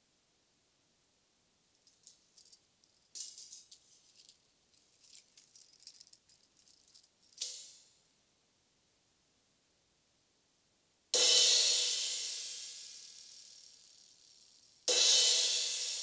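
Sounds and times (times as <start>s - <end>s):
metal jingles rattling: 1.8s - 7.4s.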